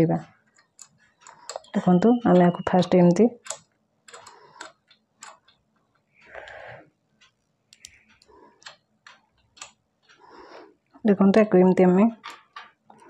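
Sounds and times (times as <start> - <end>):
clicks and taps of sewing machine parts: 12.2 - 13.0.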